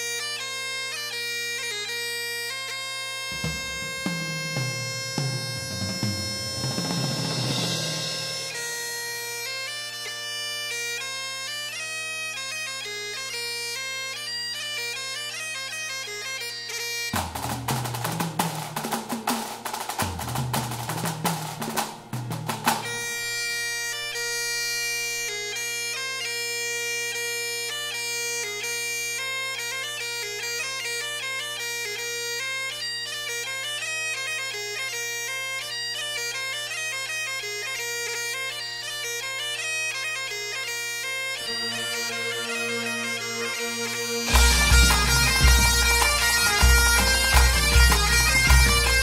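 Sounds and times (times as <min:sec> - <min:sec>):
bagpipes playing over drone: 0:00.0 - 0:17.1, 0:22.9 - 0:49.0
drums beating: 0:03.3 - 0:08.8, 0:17.2 - 0:23.0, 0:41.4 - 0:49.0.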